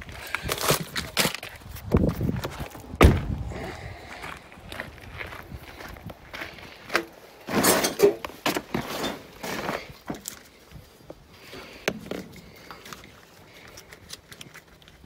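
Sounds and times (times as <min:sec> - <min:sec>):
hands rustling and scraping wiring: 0:00.0 - 0:03.0, 0:06.0 - 0:15.0.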